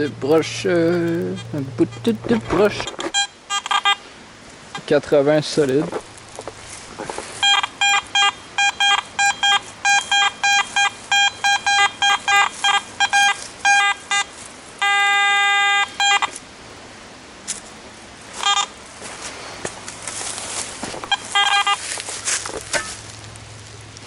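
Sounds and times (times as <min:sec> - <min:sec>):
metal detector steady tone: 0:00.0 - 0:04.0, 0:07.4 - 0:16.4, 0:18.4 - 0:18.8, 0:20.7 - 0:23.0
metal detector beeping: 0:00.9 - 0:04.0, 0:07.4 - 0:16.4, 0:18.4 - 0:18.8, 0:20.9 - 0:21.9.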